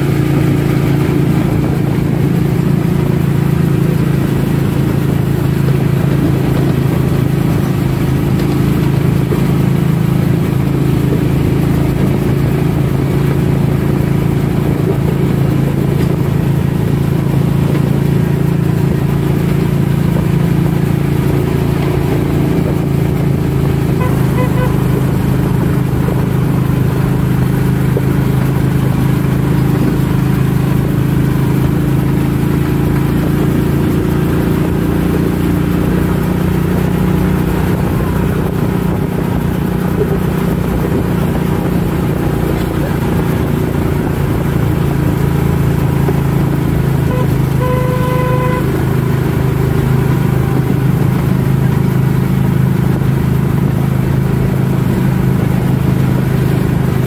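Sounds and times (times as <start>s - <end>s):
train motor and wheels on rail: 0.0s - 57.0s.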